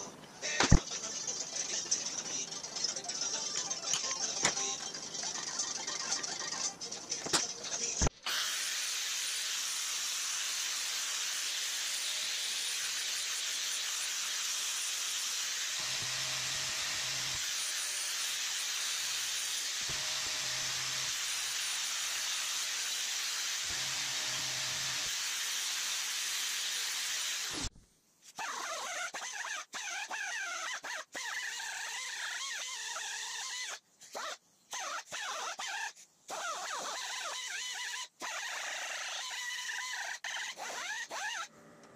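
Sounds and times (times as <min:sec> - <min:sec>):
angle grinder grinding steel: 0:00.5 - 0:27.7.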